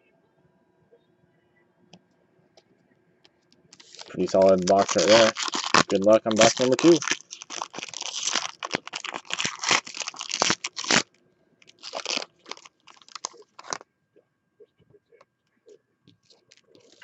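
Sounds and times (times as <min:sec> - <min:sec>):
foil wrapper tearing and crinkling: 0:03.8 - 0:13.8, 0:16.2 - 0:17.0.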